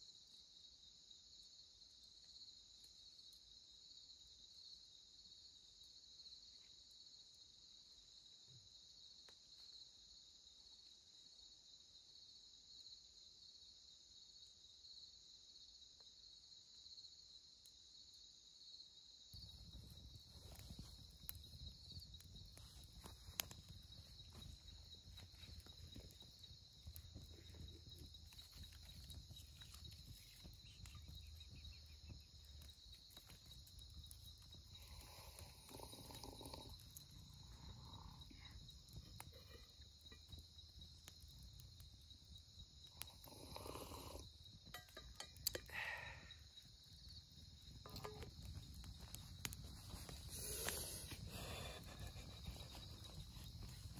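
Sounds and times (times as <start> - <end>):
crickets chirring: 0.0 - 53.9
faint crackles and clicks: 19.3 - 45.8, 46.6 - 53.9.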